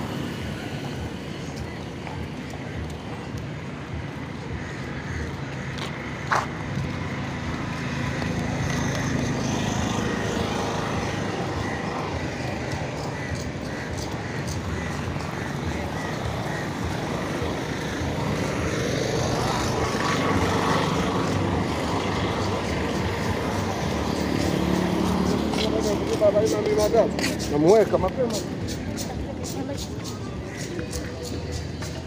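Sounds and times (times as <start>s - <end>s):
road traffic: 0.0s - 32.0s
people talking: 19.8s - 32.0s.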